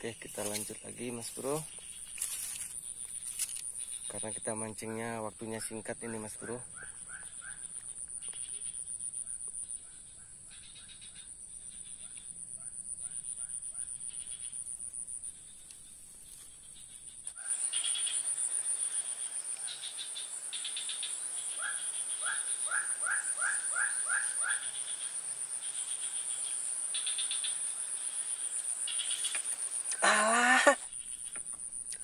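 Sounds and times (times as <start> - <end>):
high-pitched insect drone: 0.0 - 6.6, 16.7 - 32.0
quick rising frog calls: 6.0 - 8.8, 17.2 - 31.4
loud wavering animal call: 21.6 - 24.8.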